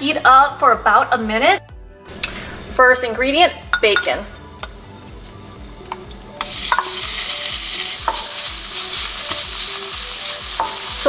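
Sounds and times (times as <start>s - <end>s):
bacon sizzling in a frying pan: 4.4s - 11.0s.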